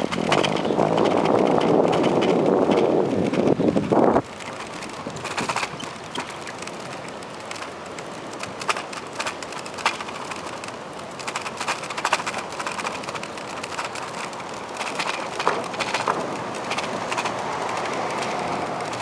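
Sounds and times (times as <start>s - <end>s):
bicycle rattling over wooden planks: 0.0s - 19.0s.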